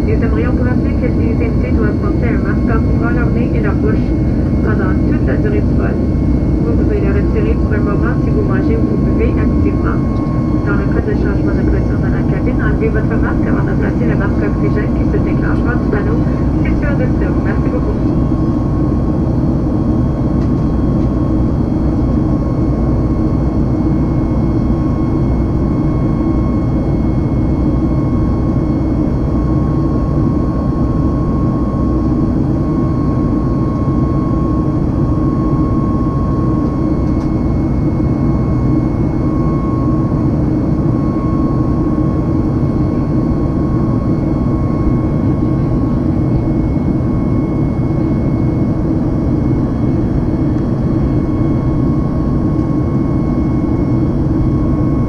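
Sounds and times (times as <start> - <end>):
airplane cabin rumble: 0.0 - 55.0
high steady whine: 0.0 - 55.0.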